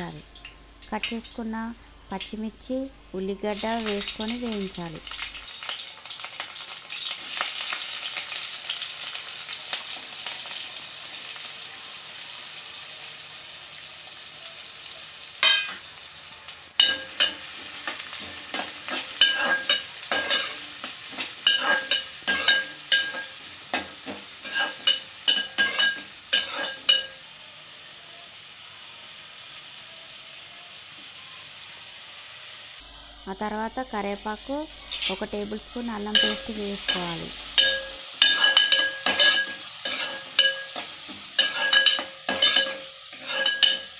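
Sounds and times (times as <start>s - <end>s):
spices sizzling in hot oil: 0.0s - 43.9s
metal spoon clinking against pot: 15.4s - 15.8s, 16.7s - 27.2s, 36.0s - 43.9s.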